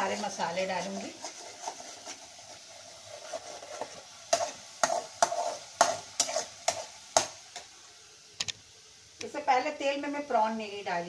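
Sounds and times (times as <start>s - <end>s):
metal spoon scraping pan: 0.0s - 7.3s
onion paste sizzling in oil: 0.0s - 11.0s.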